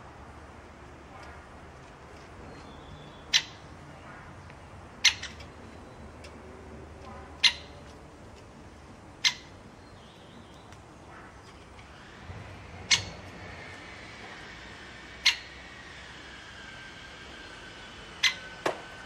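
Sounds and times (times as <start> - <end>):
woodpecker kik call: 2.9 - 3.6, 5.0 - 5.6, 7.4 - 7.8, 9.2 - 9.6, 12.9 - 13.3, 15.2 - 15.7, 18.2 - 18.8.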